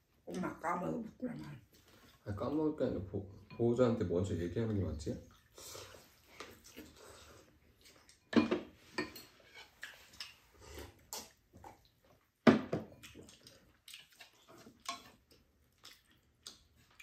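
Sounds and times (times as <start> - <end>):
eating sounds: 5.2 - 8.2, 13.0 - 17.0
chopsticks clinking on bowls: 7.8 - 10.4.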